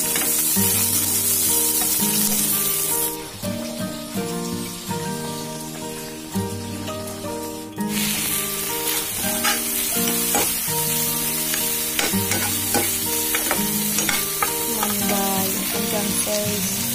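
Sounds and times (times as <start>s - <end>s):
background music: 0.0s - 16.9s
vegetables sizzling in oil: 0.0s - 16.9s
metal spatula scraping a wok: 8.9s - 10.5s, 11.5s - 15.1s.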